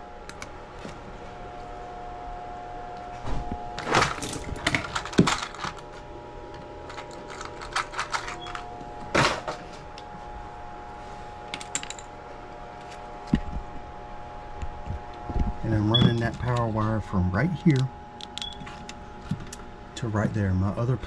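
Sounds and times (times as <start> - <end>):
faint steady hum: 0.0 - 21.0
plastic connectors clicking and rattling: 4.2 - 5.9, 6.8 - 8.6.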